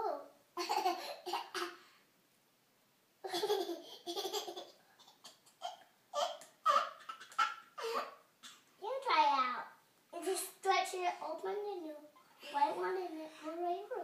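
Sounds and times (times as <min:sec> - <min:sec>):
baby laughing: 0:00.6 - 0:01.7, 0:03.2 - 0:08.6.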